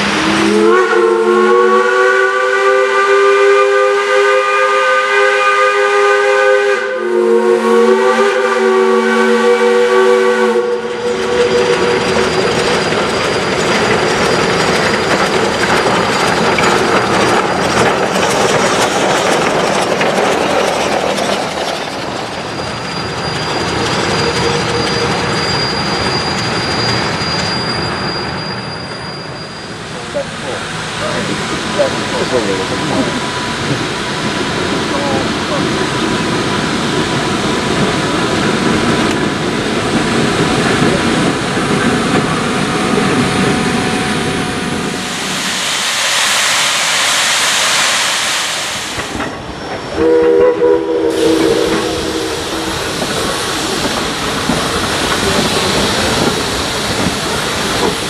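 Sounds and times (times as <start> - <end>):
steam hissing: 0.0 - 58.0
steam locomotive whistle blasts: 0.1 - 12.2, 43.6 - 53.8.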